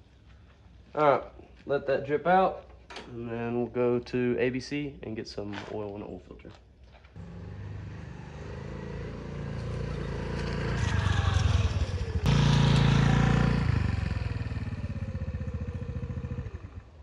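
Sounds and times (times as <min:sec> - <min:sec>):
motorcycle engine revving: 0:07.2 - 0:17.0.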